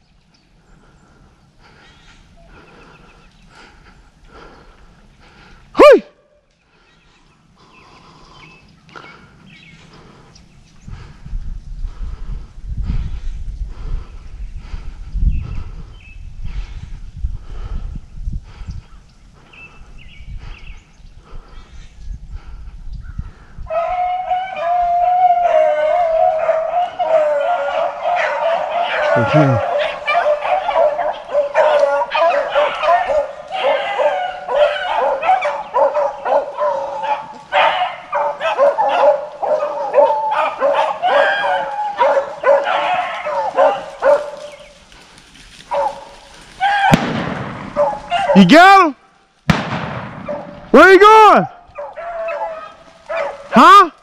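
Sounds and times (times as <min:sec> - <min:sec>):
hounds baying: 0:23.6 - 0:48.9, 0:50.2 - 0:53.9
gunshot with echo: 0:46.9 - 0:48.0, 0:49.5 - 0:50.7.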